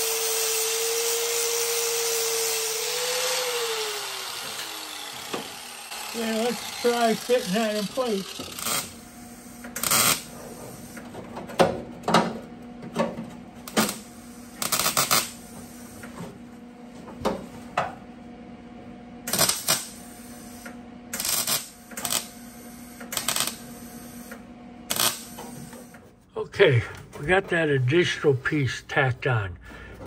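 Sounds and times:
welder crackling bursts: 0.0s - 10.3s, 13.7s - 15.4s, 19.3s - 20.0s, 21.1s - 22.4s, 23.1s - 23.9s, 24.9s - 25.6s.

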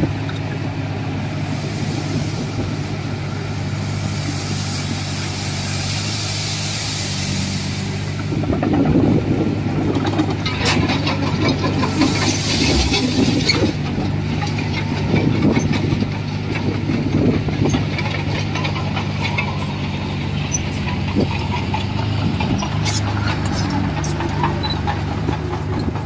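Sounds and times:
bulldozer diesel engine running: 0.0s - 26.0s
knocks and clanks: 20.6s - 26.0s.

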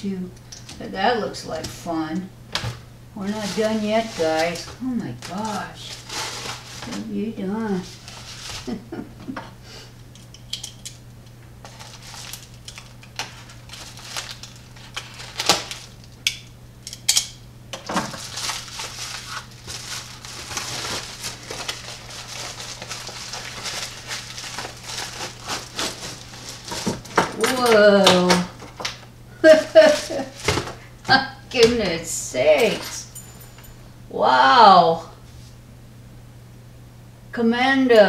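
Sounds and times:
plastic mailer crinkling: 3.2s - 8.9s, 11.6s - 16.2s, 17.7s - 30.9s
sharp plastic crackles: 11.6s - 16.2s, 17.7s - 29.1s.

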